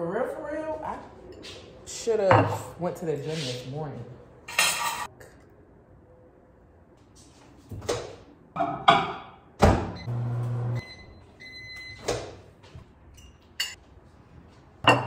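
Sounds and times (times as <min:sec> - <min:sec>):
microwave humming: 0:09.6 - 0:12.1
microwave electronic beeps: 0:10.0 - 0:12.1.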